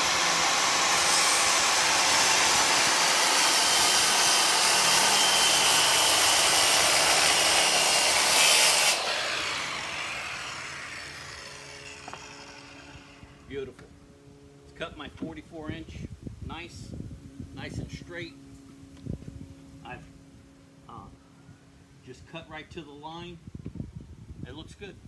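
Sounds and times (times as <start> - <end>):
circular saw cutting plywood: 0.0 - 13.5
saw blade winding down: 0.0 - 13.5.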